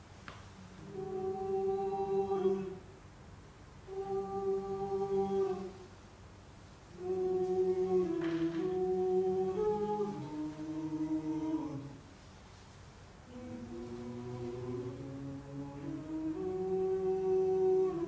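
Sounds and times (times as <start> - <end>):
voices humming: 0.8 - 3.0, 3.9 - 5.9, 6.9 - 12.1, 13.3 - 18.0.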